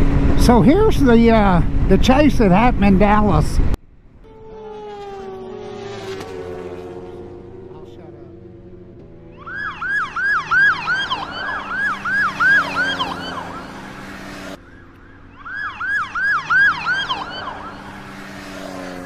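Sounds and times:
low vehicle hum: 0.0s - 19.0s
police siren yelping: 9.2s - 18.8s.

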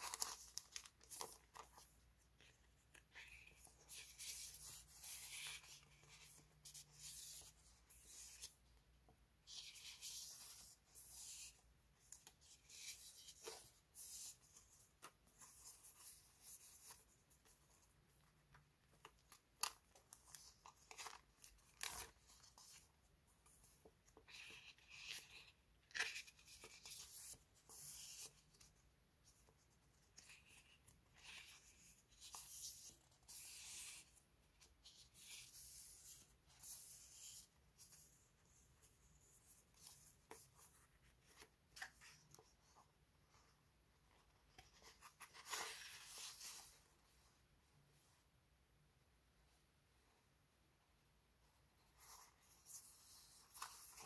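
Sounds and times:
paper rustling: 0.0s - 8.6s, 51.9s - 54.0s.

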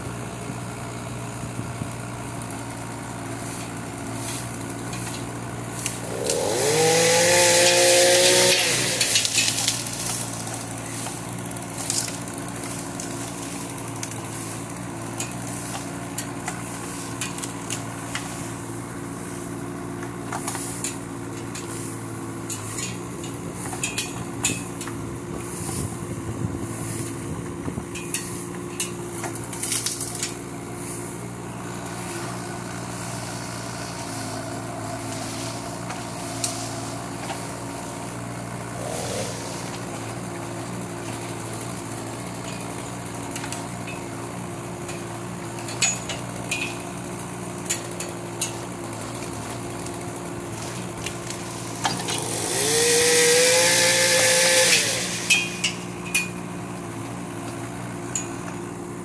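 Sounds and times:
excavator diesel engine running: 0.0s - 59.0s
branches and roots snapping: 5.0s - 14.2s, 29.3s - 30.4s
hydraulic whine and hiss: 38.6s - 40.8s.

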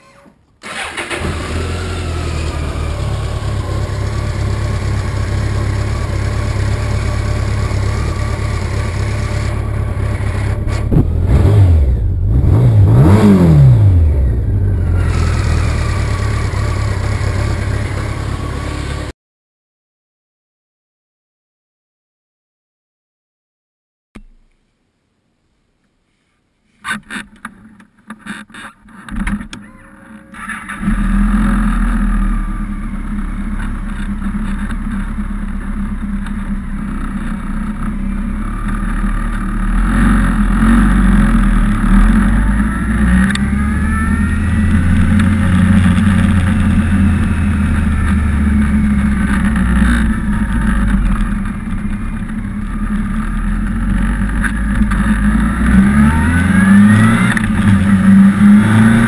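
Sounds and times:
motorcycle engine pulling away: 0.6s - 19.1s, 30.4s - 59.0s.

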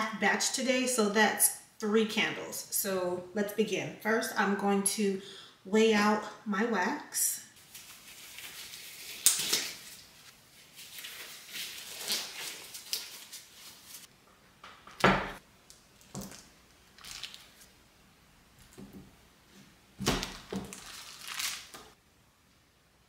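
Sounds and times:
gloves rustling and snapping: 7.6s - 14.1s, 14.9s - 17.8s, 20.0s - 22.0s.

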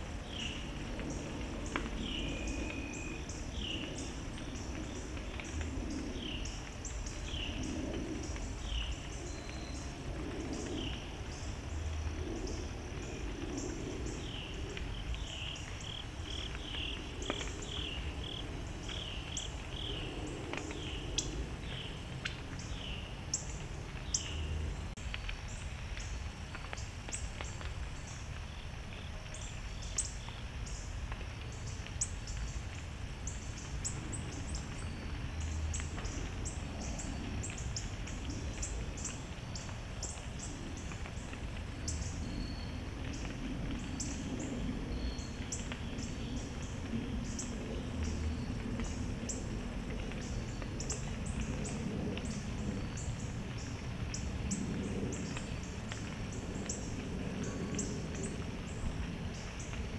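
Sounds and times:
low steady rumble: 0.0s - 59.9s
insects chorus: 0.1s - 24.9s, 25.5s - 59.9s.

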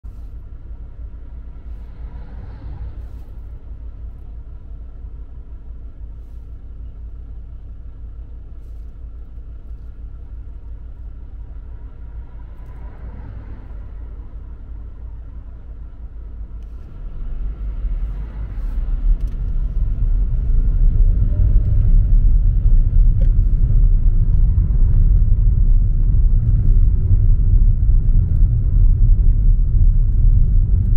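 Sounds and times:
car engine and road rumble: 0.0s - 30.9s
car engine idling: 2.9s - 12.8s.

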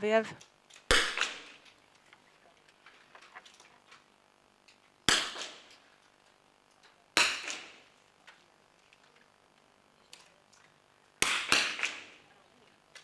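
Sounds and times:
rifle shots cracking with echo: 0.8s - 1.6s, 5.0s - 5.8s, 7.2s - 8.0s, 11.2s - 12.3s.

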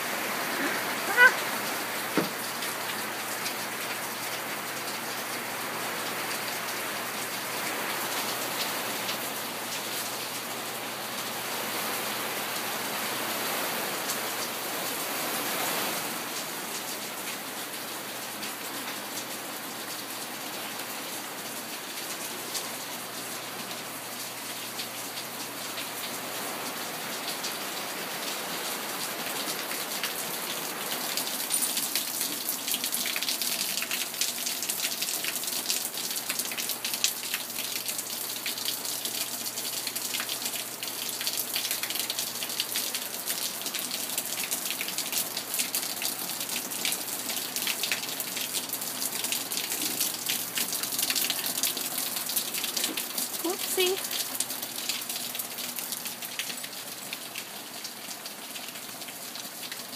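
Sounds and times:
heavy rain on a deck: 0.0s - 59.9s
water dripping off roof eave: 0.0s - 59.9s.

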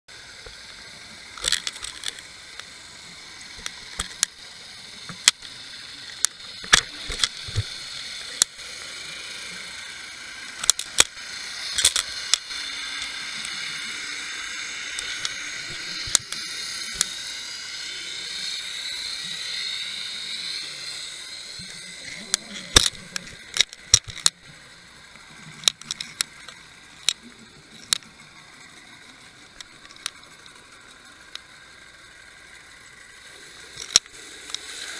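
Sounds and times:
faint sliding whines: 0.1s - 34.9s
sharp clicks and knocks underwater: 0.3s - 8.8s, 10.4s - 13.6s, 15.0s - 17.2s, 21.4s - 31.5s, 33.7s - 34.8s.

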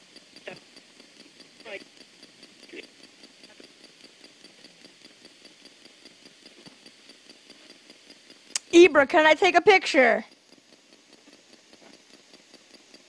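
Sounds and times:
regular ticking: 0.0s - 13.0s
faint radio static: 1.6s - 1.9s, 8.6s - 10.2s.

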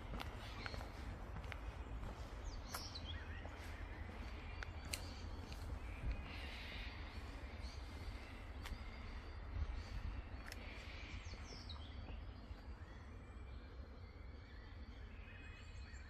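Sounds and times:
footsteps on gravel: 0.0s - 9.2s
birds chirping: 0.0s - 16.0s.

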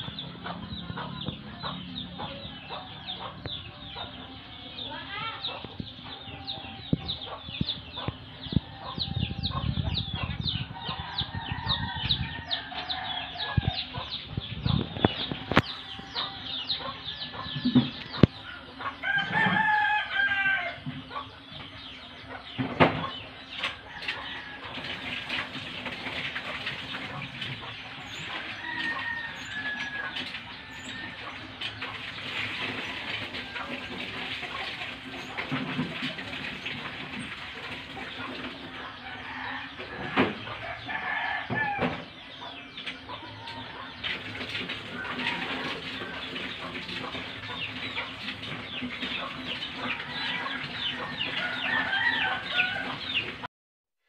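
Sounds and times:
chickens clucking: 0.0s - 53.5s
rooster crowing: 10.6s - 13.9s, 16.0s - 20.9s, 23.8s - 25.1s, 28.0s - 31.6s, 38.8s - 42.1s, 44.9s - 46.3s, 49.9s - 53.2s.

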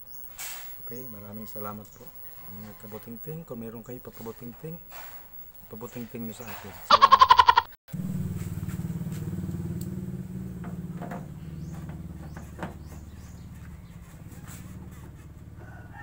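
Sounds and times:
small engine running: 7.9s - 15.7s.

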